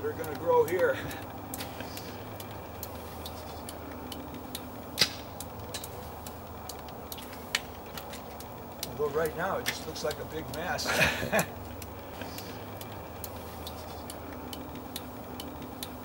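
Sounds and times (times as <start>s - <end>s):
low outdoor background rumble: 0.0s - 16.0s
faint clicks and knocks: 0.2s - 10.7s.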